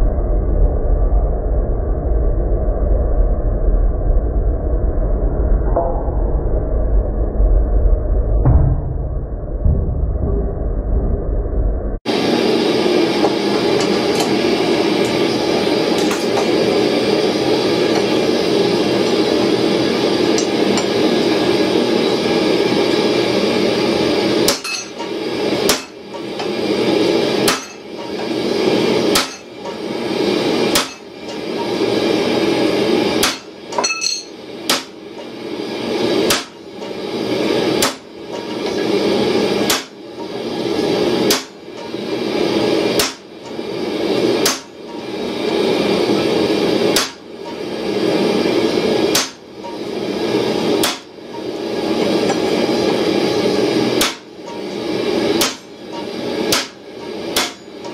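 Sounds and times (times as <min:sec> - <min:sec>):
hammer striking metal on anvil: 0:05.7 - 0:06.1, 0:24.5 - 0:26.5, 0:27.4 - 0:28.3, 0:29.1 - 0:29.8, 0:30.7 - 0:31.7, 0:33.2 - 0:35.0, 0:36.3 - 0:36.6, 0:39.7 - 0:40.0, 0:41.3 - 0:41.9, 0:43.0 - 0:43.3, 0:44.4 - 0:44.8, 0:47.0 - 0:47.6, 0:49.1 - 0:49.8, 0:50.8 - 0:51.1, 0:54.0 - 0:54.6, 0:55.4 - 0:57.9.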